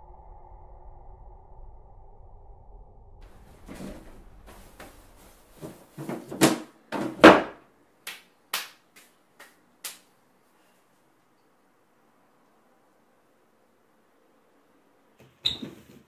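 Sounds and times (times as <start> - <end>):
drawer knocking and scraping: 3.6 - 4.6, 5.6 - 7.6.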